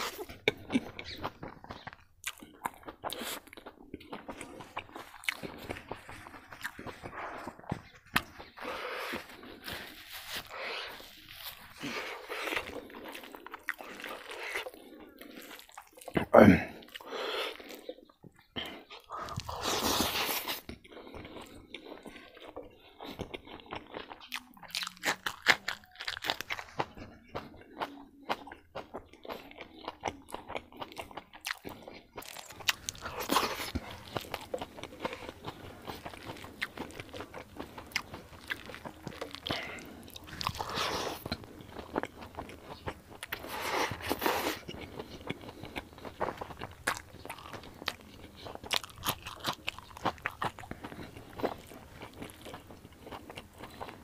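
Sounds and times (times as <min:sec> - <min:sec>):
chewing and crunching vegetables: 0:00.0 - 0:54.0.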